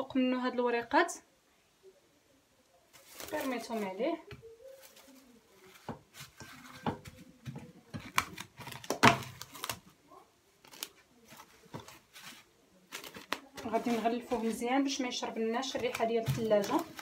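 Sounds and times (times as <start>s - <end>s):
cling film crinkling: 2.9s - 6.8s, 8.0s - 10.0s, 10.6s - 14.9s.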